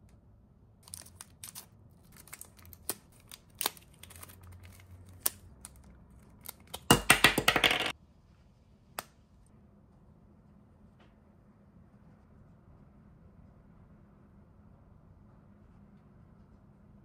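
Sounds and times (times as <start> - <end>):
plastic bag crinkling: 0.8 - 6.7.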